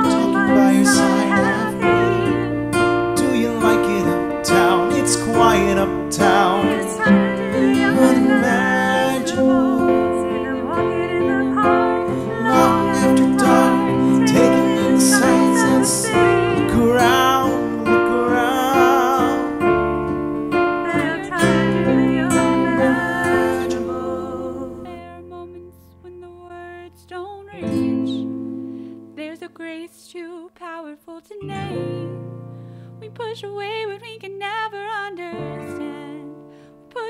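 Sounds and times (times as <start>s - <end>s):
man and woman singing: 0.0s - 19.7s, 20.7s - 26.2s, 27.5s - 28.3s, 29.2s - 32.2s, 33.3s - 36.4s
digital piano: 0.0s - 25.4s
classical guitar: 0.0s - 37.0s.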